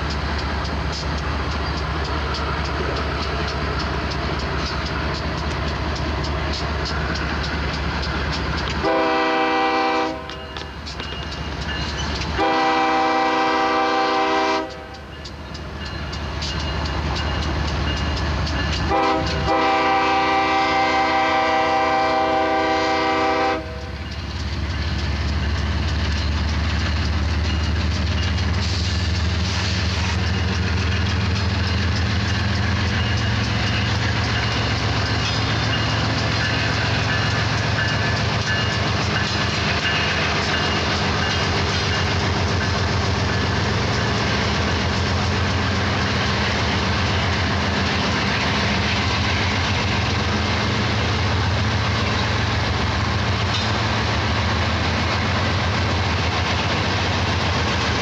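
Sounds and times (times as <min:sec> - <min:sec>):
deep locomotive engine rumble: 0:00.0 - 0:58.0
locomotive air horn blasts: 0:08.8 - 0:10.4, 0:12.4 - 0:14.9, 0:18.9 - 0:24.0.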